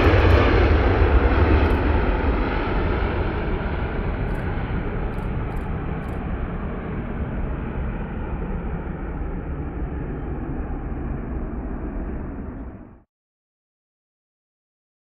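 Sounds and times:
jet engines rumbling: 0.0s - 13.0s.

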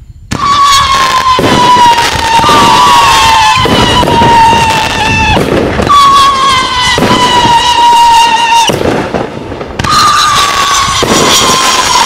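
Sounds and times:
falling firework whistle: 0.1s - 9.1s, 9.8s - 12.0s
firework bangs: 0.3s - 12.0s.

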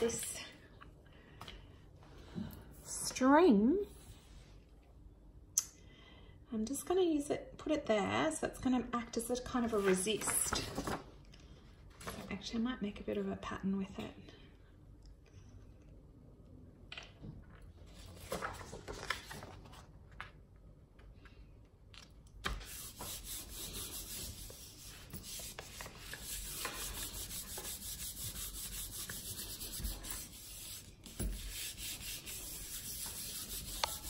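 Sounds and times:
paper rustling and tapping: 18.2s - 20.4s
palms rubbing over paper: 22.5s - 34.0s.

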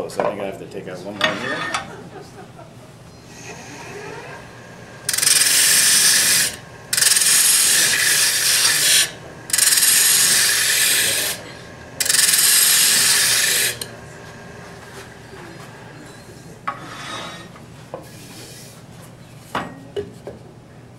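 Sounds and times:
lathe tool scraping wood: 1.2s - 2.0s, 3.3s - 15.4s, 16.8s - 17.5s.

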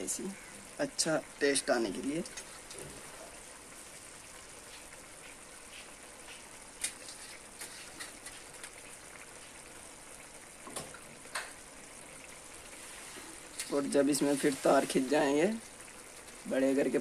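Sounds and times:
food sizzling in a pan: 0.0s - 17.0s
oil pops and spits: 5.8s - 9.5s.

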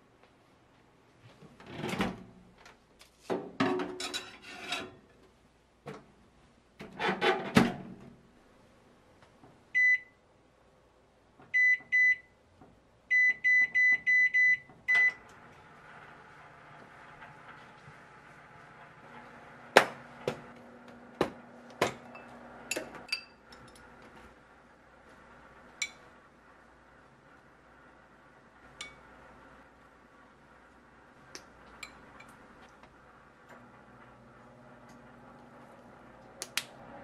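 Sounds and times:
microwave keypad beeps: 9.8s - 10.2s, 11.6s - 12.3s, 13.1s - 15.2s
microwave oven humming: 13.1s - 37.0s.

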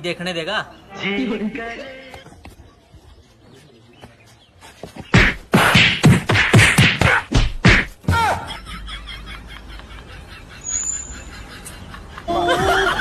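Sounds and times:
loud percussive hits: 5.2s - 8.0s.

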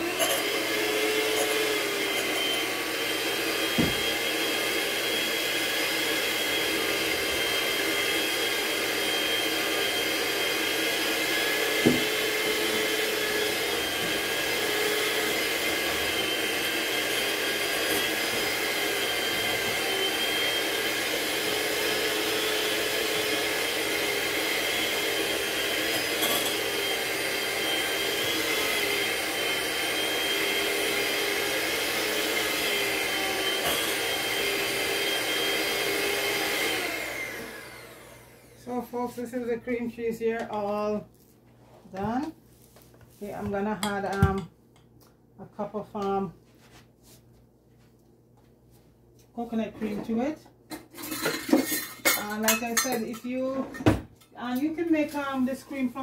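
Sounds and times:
electric mixer running: 0.0s - 39.8s.

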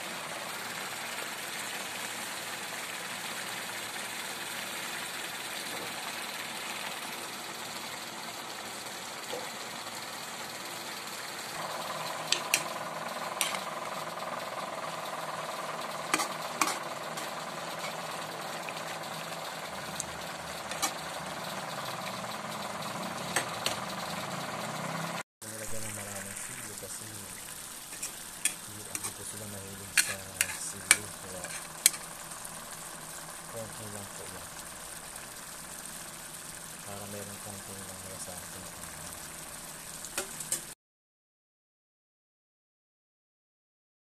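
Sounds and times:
food bubbling in a wok: 0.0s - 36.9s, 38.4s - 40.7s
steady hum: 10.2s - 24.5s, 25.5s - 40.6s
metal spatula scraping pan: 13.4s - 13.6s, 27.9s - 29.2s, 29.9s - 32.0s.

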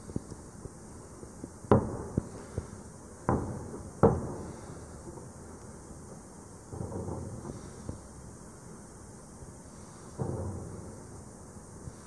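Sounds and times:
firework shells booming: 1.6s - 5.5s, 6.6s - 8.3s, 10.0s - 12.0s
sharp firework cracks: 1.6s - 8.3s, 10.0s - 11.2s.

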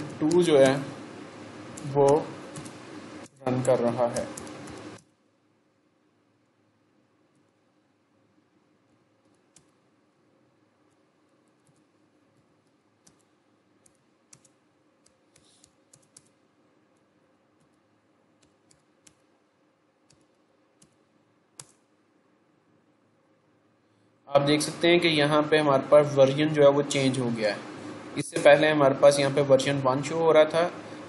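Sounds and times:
computer keyboard keystrokes: 1.8s - 5.1s, 9.2s - 9.8s, 11.6s - 16.4s, 18.4s - 19.2s, 20.1s - 21.0s, 21.6s - 21.8s.

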